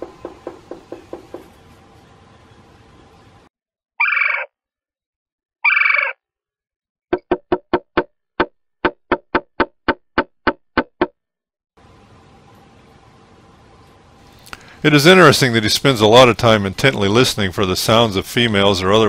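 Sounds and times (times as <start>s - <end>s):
woodpecker calls: 4.0s - 4.5s, 5.6s - 6.2s.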